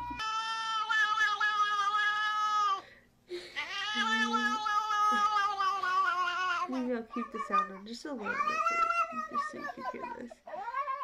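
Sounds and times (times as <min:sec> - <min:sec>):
cat meowing long calls: 0:00.0 - 0:02.8, 0:03.6 - 0:06.7.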